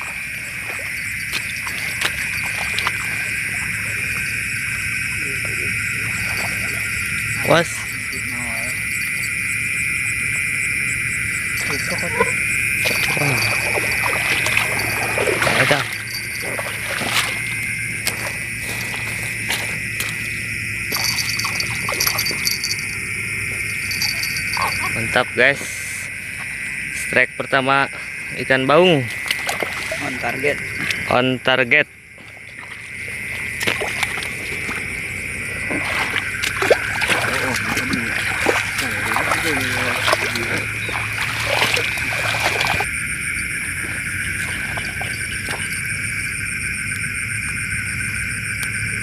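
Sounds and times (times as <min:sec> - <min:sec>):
night insects chirring: 0:00.0 - 0:49.0
grass rustling: 0:05.8 - 0:25.1.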